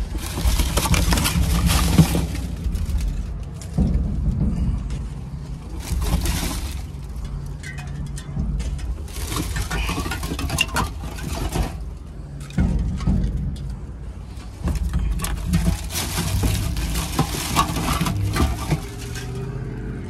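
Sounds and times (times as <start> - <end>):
packing paper crinkling: 0.0 - 3.8, 5.7 - 7.2, 9.0 - 11.8, 14.6 - 19.5
cans clinking and clattering: 0.0 - 3.9, 5.8 - 13.7, 14.6 - 19.7
steady low hum: 0.0 - 20.0.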